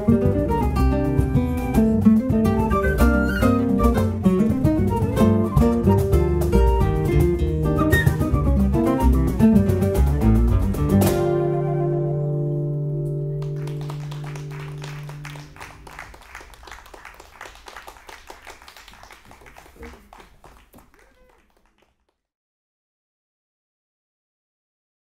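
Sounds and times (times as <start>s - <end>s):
audience clapping: 13.3s - 22.2s.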